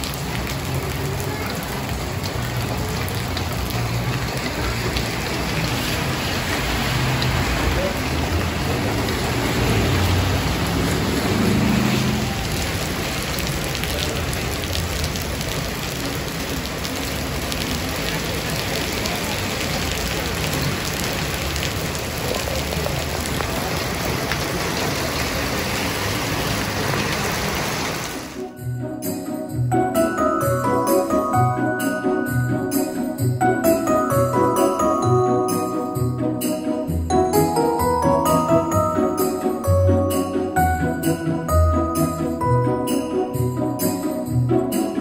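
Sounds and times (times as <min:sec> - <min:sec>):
heavy rain on pavement: 0:00.0 - 0:28.6, 0:29.8 - 0:36.0
vehicle passing: 0:01.9 - 0:28.2.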